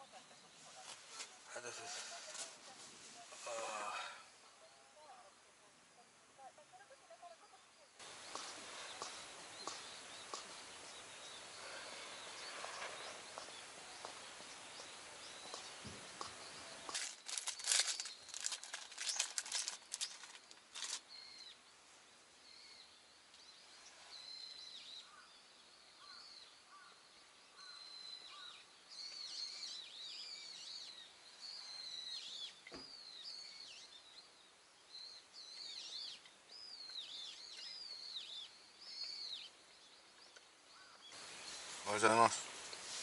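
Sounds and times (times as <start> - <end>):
faint outdoor hiss: 0.0 - 43.0
small birds chirping: 0.0 - 43.0
plastic wrapper crinkling: 16.9 - 21.0.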